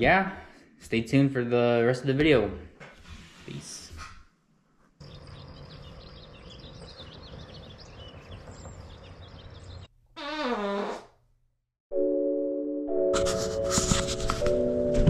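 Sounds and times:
outdoor background noise: 2.8s - 9.9s
small birds chirping: 5.0s - 9.9s.

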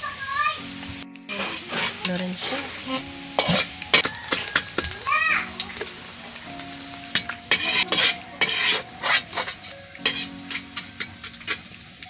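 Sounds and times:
rice sizzling in hot oil: 0.0s - 12.0s
metal spatula scraping wok: 1.3s - 4.7s, 7.5s - 11.6s.

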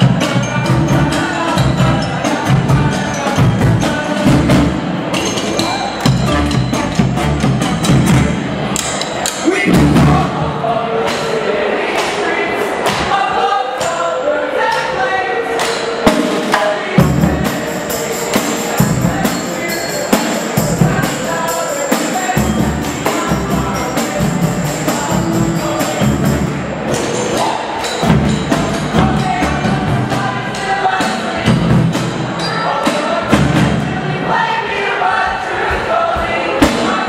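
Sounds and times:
drums: 0.0s - 14.1s, 14.7s - 37.0s
sousaphone bass notes: 6.0s - 8.4s.

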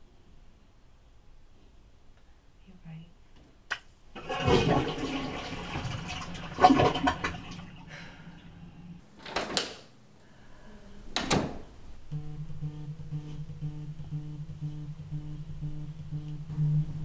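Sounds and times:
toilet flushing: 4.1s - 9.0s.

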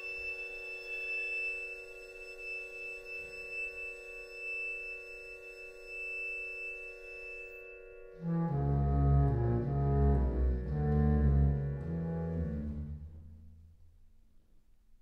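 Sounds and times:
clear high tone: 0.0s - 9.2s.

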